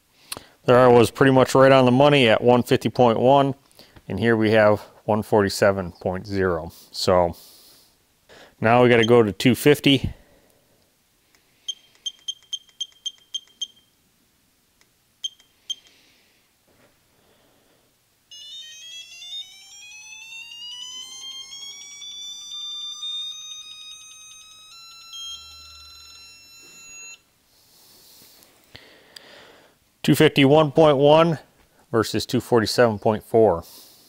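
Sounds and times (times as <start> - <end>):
torque wrench button beeps: 11.7 - 13.9, 15.2 - 15.9
rising alert tone: 18.3 - 27.2.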